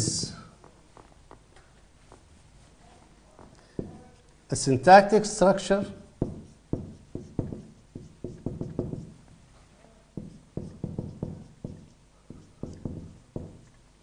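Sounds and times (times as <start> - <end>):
marker tapping on whiteboard: 3.6 - 4.1, 6.2 - 9.2, 10.2 - 13.8.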